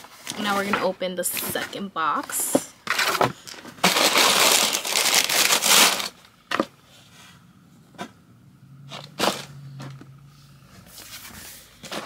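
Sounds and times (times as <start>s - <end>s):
tissue paper rustling: 3.8s - 6.2s.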